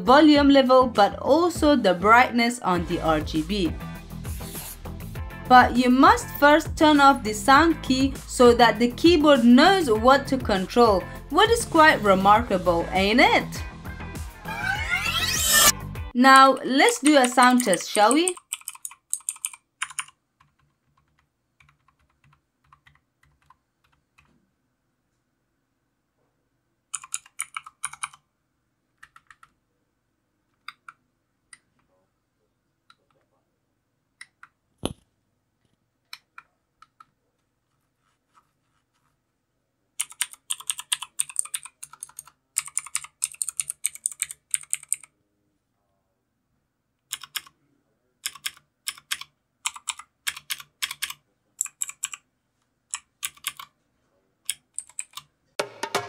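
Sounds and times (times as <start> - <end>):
mechanical keyboard typing: 16.8 - 24.3, 26.9 - 28.2, 29.0 - 29.6, 40.0 - 45.1, 47.1 - 47.6, 48.2 - 52.2, 52.9 - 53.8, 54.5 - 55.3.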